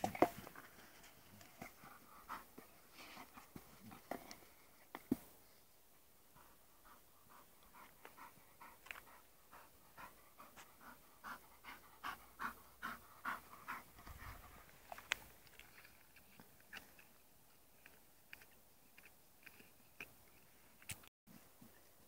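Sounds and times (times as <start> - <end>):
dog panting: 0.8 - 4.4, 6.3 - 15.1.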